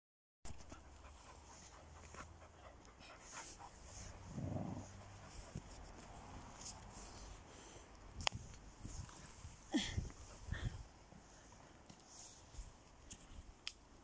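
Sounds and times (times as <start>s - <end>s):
dog panting: 0.5s - 7.8s.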